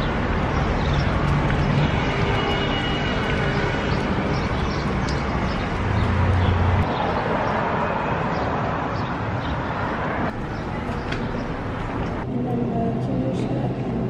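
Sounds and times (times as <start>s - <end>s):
sandal footsteps on pavement: 0.0s - 6.9s
traffic rumble: 0.0s - 14.0s.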